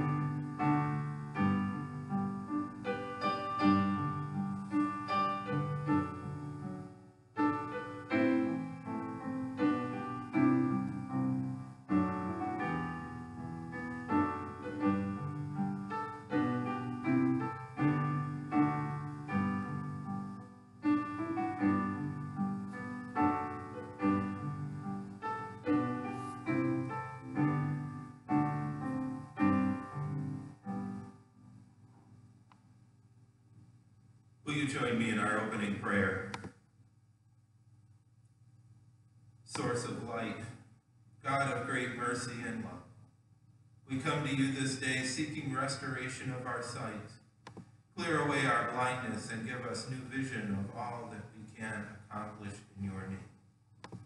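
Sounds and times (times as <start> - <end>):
slow solo piano music: 0.0 - 31.2.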